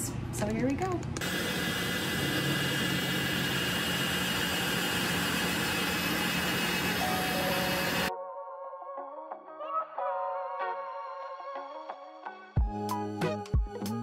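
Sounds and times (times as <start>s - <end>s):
heat gun fan blowing: 1.2s - 8.1s.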